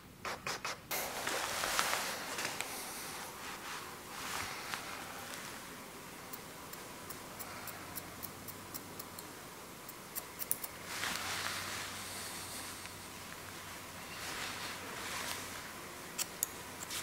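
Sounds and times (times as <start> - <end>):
comb rustling through hair: 1.0 - 5.6, 10.8 - 12.0, 13.6 - 15.8
scissors snipping hair: 10.1 - 10.8.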